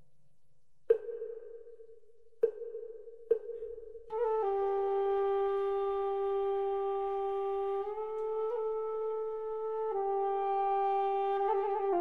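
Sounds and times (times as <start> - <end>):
flute-like wind instrument: 4.1 - 12.0.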